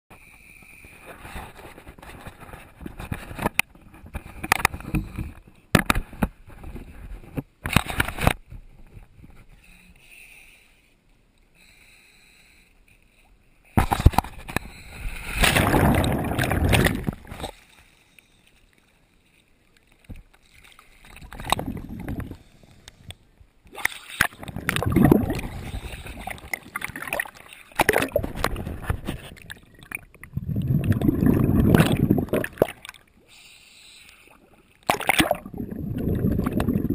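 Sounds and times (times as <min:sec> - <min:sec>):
water sloshing and splashing: 0:13.8 - 0:33.2, 0:34.3 - 0:36.9.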